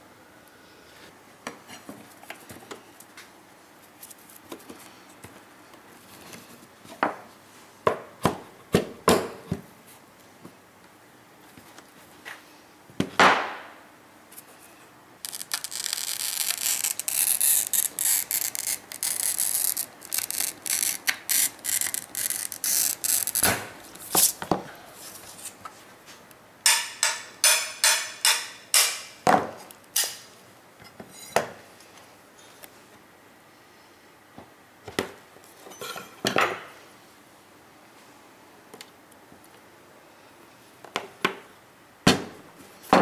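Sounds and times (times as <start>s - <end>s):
glass cutter scratching glass: 15.3s - 23.6s.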